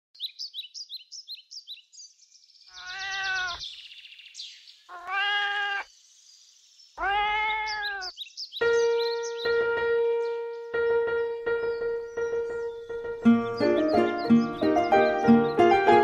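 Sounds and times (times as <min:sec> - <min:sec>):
high bird-like chirping: 0:00.2 - 0:10.8, 0:11.4 - 0:16.0
cat meowing: 0:02.7 - 0:03.6, 0:04.9 - 0:05.9, 0:07.0 - 0:08.2.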